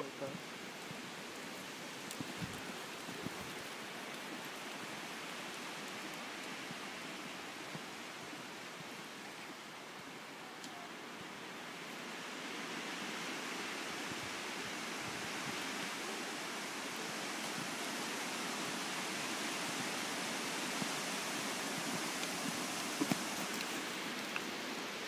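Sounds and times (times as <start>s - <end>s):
wind: 0.0s - 25.0s
rustling: 21.8s - 24.9s.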